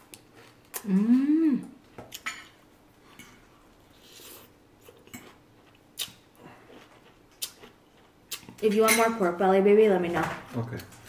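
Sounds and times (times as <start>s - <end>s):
person chewing: 3.0s - 8.6s.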